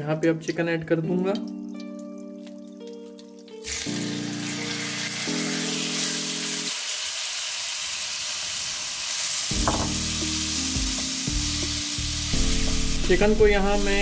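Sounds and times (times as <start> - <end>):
chicken sizzling in hot oil: 3.5 - 14.0.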